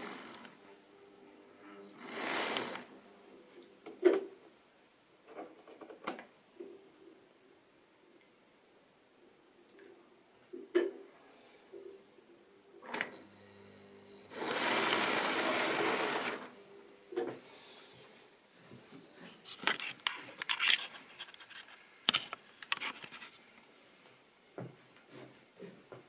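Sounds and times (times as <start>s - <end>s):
camera handling rubbing: 19.5s - 23.4s.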